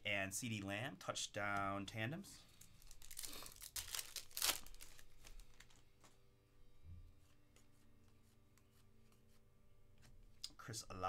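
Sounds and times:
plastic sleeves crinkling: 2.4s - 6.2s.

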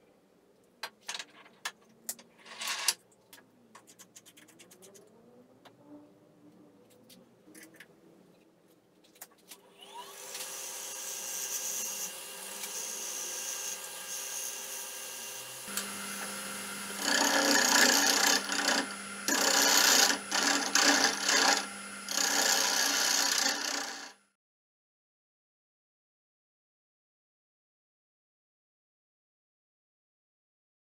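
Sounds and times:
wood lathe running: 9.8s - 24.2s
gouge scraping spinning wood: 10.3s - 24.2s.

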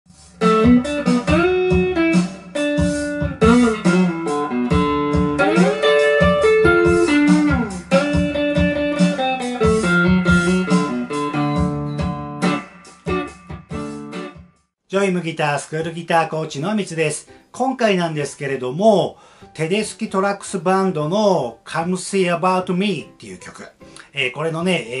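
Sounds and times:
electric guitar lead with bends: 0.4s - 14.4s.

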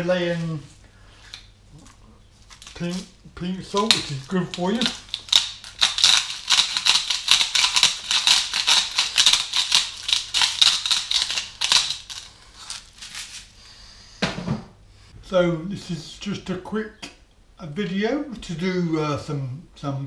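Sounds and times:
salt grinder crunching: 1.3s - 13.6s.

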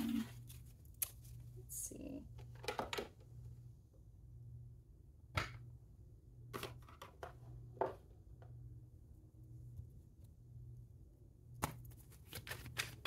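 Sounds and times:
faint low hum: 0.0s - 13.0s
cards shuffling: 11.6s - 13.0s
cards tapping and sliding: 11.6s - 13.0s.

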